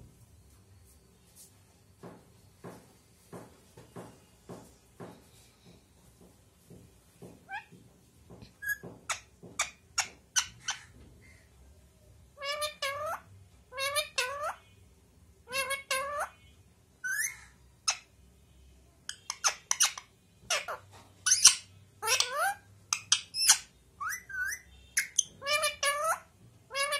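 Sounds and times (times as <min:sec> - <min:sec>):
parakeet squeaky calls: 0:07.5 - 0:07.8, 0:08.6 - 0:11.4, 0:12.4 - 0:14.6, 0:15.5 - 0:16.4, 0:17.0 - 0:18.1, 0:19.1 - 0:26.9.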